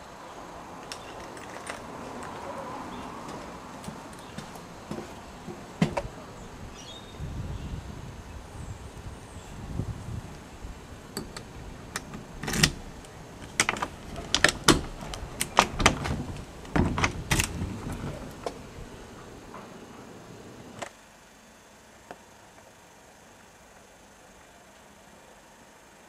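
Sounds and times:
door latch clicking and rattling: 0:05.5 - 0:06.1, 0:11.1 - 0:18.9.

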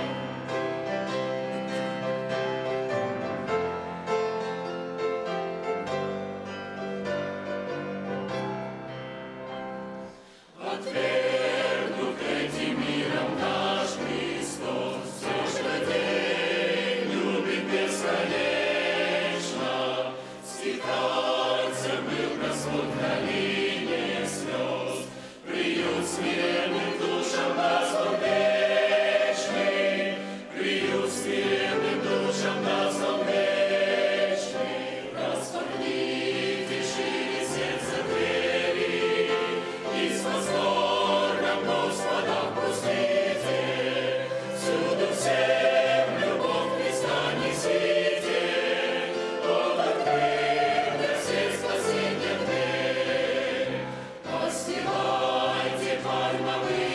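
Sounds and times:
choir singing a hymn: 0:00.0 - 0:56.9
singers breathing: 0:10.0 - 0:10.8, 0:20.1 - 0:20.6, 0:25.0 - 0:25.5, 0:30.2 - 0:30.5, 0:53.8 - 0:54.3.

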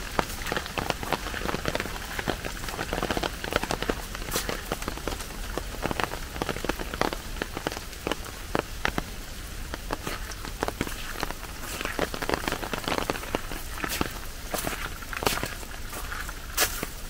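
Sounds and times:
rain falling: 0:00.0 - 0:17.0
sharp raindrop hits: 0:00.0 - 0:17.0.

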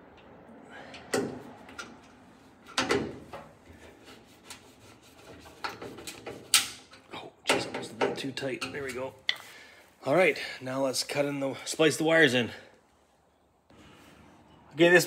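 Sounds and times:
knocks of screwing in a light: 0:05.3 - 0:09.4.

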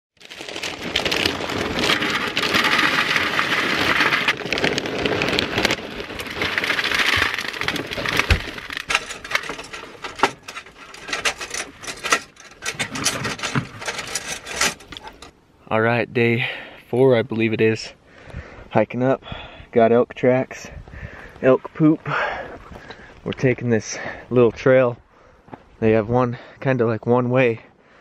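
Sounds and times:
cereal pouring into plastic bowl: 0:00.2 - 0:08.6.

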